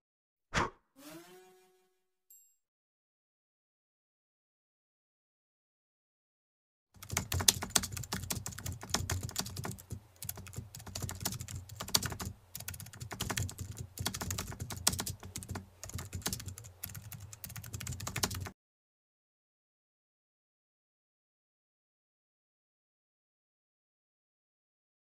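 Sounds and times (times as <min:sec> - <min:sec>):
keyboard typing clicks: 0:07.0 - 0:18.5.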